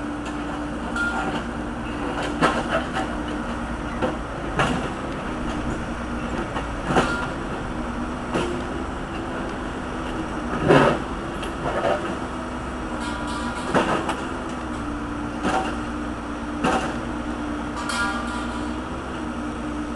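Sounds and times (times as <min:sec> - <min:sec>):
diesel engine running: 0:00.0 - 0:19.9
metal clanks from bucket: 0:13.0 - 0:14.2, 0:17.8 - 0:18.8.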